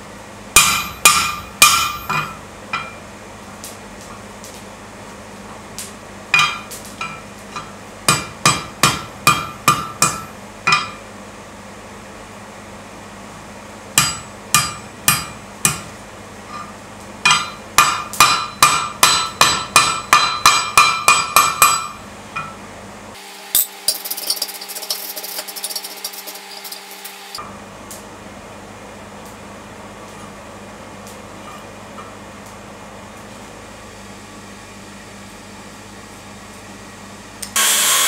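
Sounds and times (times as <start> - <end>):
steady hum with high hiss: 0.0 - 38.0
hammer striking steel on anvil: 0.6 - 3.0, 6.3 - 11.0, 14.0 - 15.9, 16.5 - 22.6.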